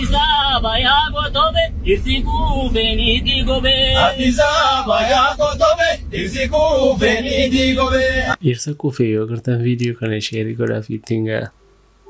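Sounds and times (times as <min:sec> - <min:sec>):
man singing chant-like: 0:00.0 - 0:08.4
steady low hum: 0:00.0 - 0:12.0.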